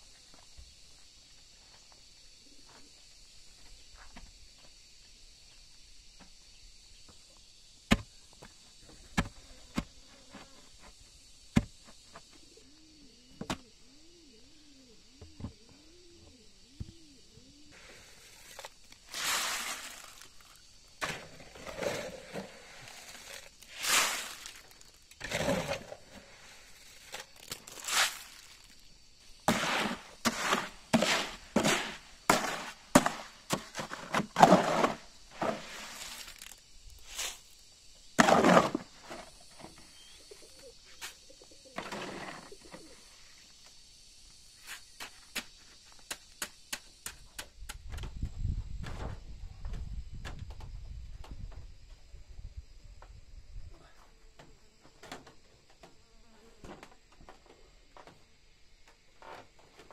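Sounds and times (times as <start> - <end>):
shovel scraping wet concrete: 18.3 - 26.1, 26.8 - 28.7, 29.5 - 37.4, 38.2 - 38.8.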